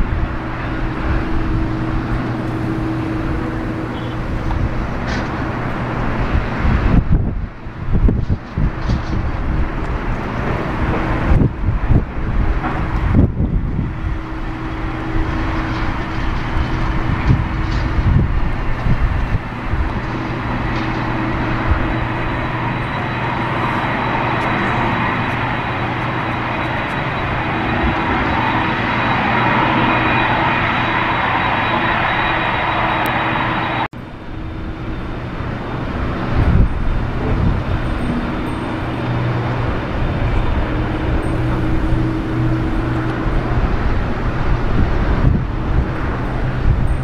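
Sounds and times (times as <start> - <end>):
jet engines roaring and whining: 0.0 - 47.0
wind rumbling on microphone: 0.0 - 47.0.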